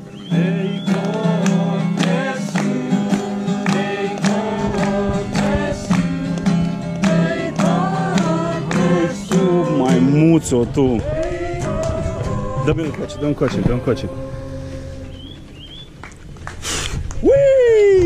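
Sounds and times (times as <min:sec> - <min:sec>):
group singing: 0:00.0 - 0:15.4
acoustic guitar: 0:00.0 - 0:17.1
hand claps: 0:00.9 - 0:10.0, 0:16.0 - 0:17.3.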